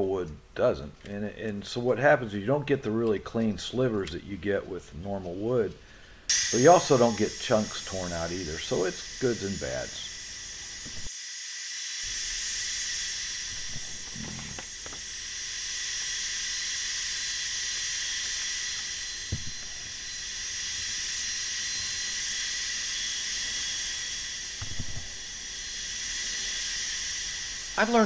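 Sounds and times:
belt sander sanding wood: 6.3 - 11.1, 12.0 - 28.0.

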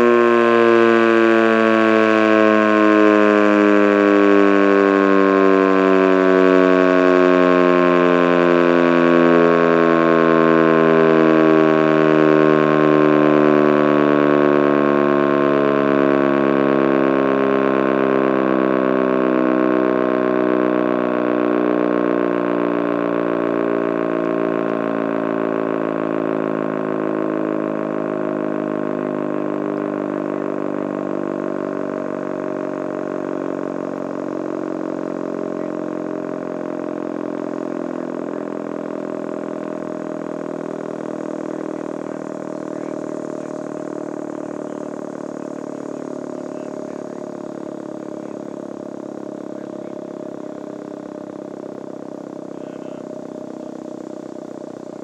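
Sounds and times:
warning siren winding down: 0.0 - 55.0.

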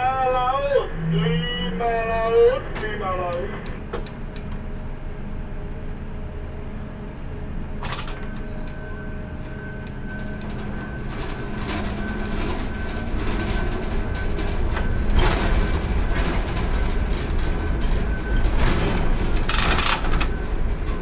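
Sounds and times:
faint high whine: 0.0 - 3.8
crane machinery low drone: 0.0 - 21.0.

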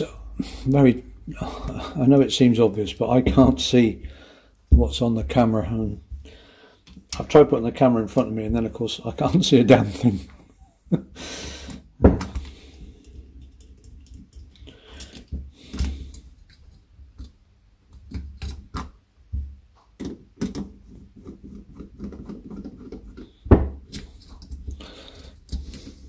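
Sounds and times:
small metal clicks and taps: 13.1 - 18.9.

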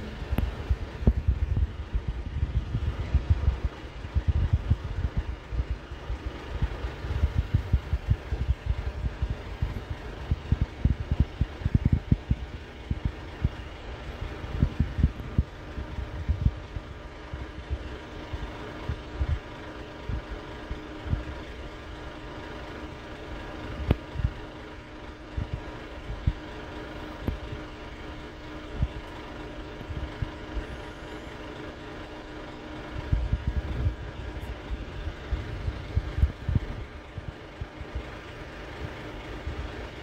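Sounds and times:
low thumps and knocks: 0.2 - 5.8.

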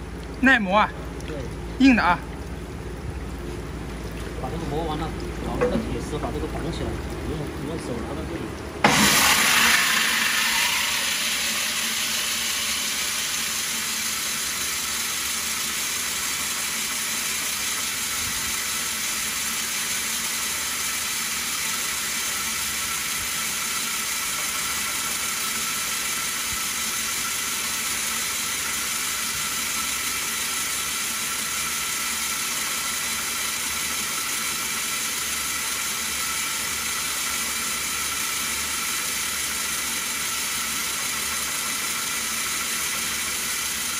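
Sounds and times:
stone bead mill grinding: 8.9 - 13.8.

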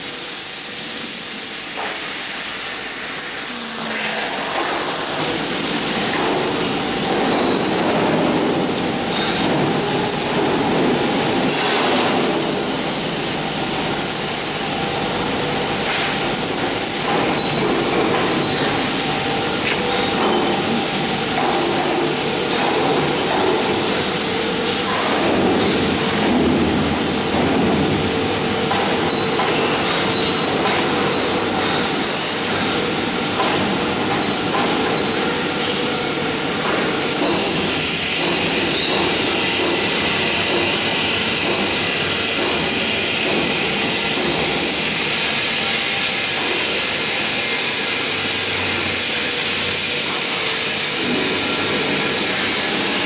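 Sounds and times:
machinery humming and hissing: 0.0 - 53.0.

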